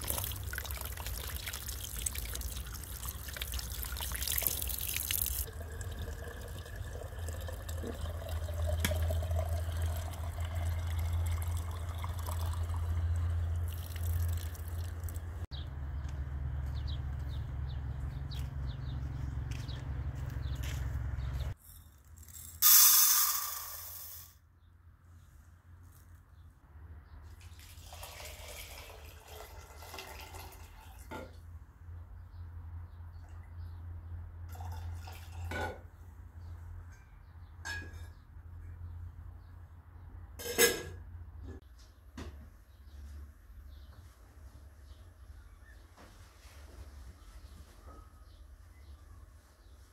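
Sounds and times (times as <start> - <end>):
water running into plastic jug: 0.0 - 13.0, 13.6 - 15.2, 27.5 - 31.3.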